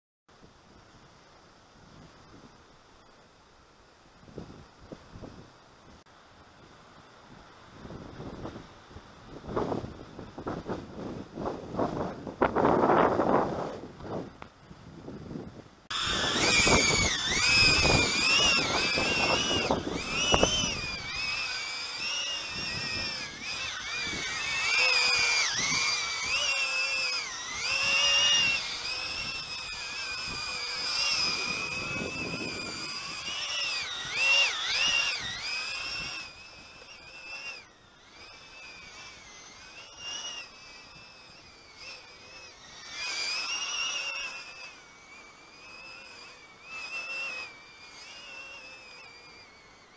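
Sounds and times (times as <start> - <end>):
wind buffeting microphone: 9.3 - 26.6
quadcopter propeller whine: 15.9 - 49.9.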